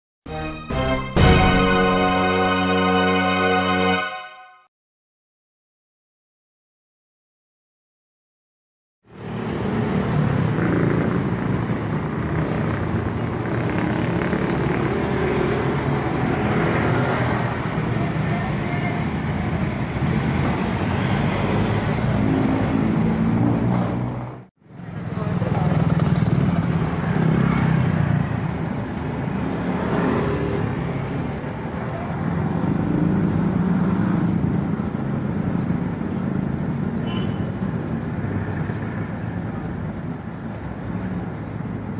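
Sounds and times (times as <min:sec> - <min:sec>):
vehicle engines passing: 0:09.1 - 0:41.9.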